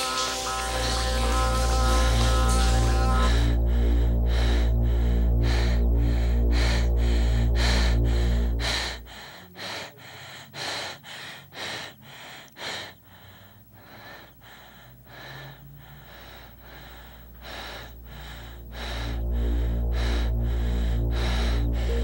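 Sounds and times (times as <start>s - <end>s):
music with deep bass: 0.1s - 9.3s, 17.2s - 22.0s
person breathing hard: 0.9s - 22.0s.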